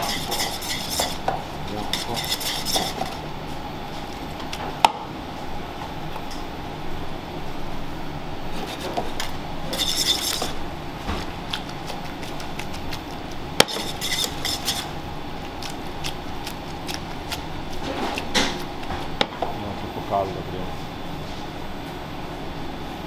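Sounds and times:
metal tongs scraping a steel pan: 0.0 - 1.2, 9.7 - 10.5, 13.7 - 14.9.

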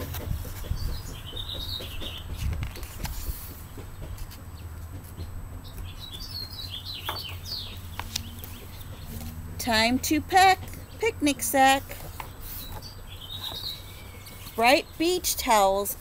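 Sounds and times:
small birds chirping: 0.0 - 16.0
book pages turning: 2.3 - 5.1, 7.0 - 9.5, 11.8 - 14.6.

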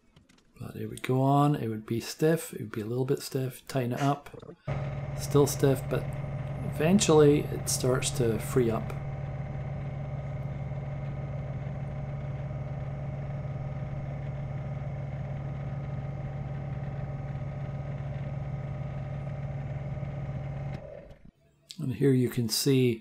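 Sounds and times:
lathe running: 4.7 - 21.3.

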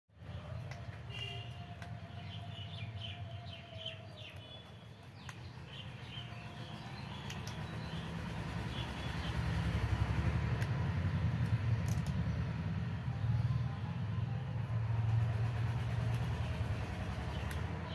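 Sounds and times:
small birds chirping: 0.2 - 12.6.

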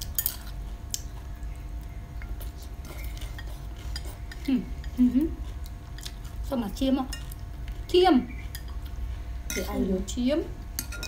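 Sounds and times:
utensils clinking on ceramic bowls: 9.5 - 9.9, 10.8 - 11.0.

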